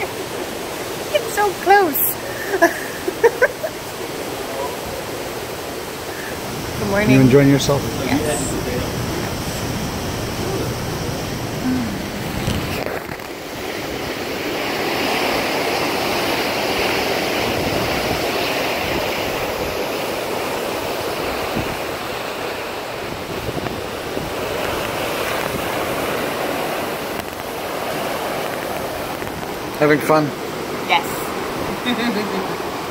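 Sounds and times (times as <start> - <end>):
seawater rushing along hull: 0.0 - 32.9
wind on microphone: 6.1 - 20.1, 20.8 - 29.7.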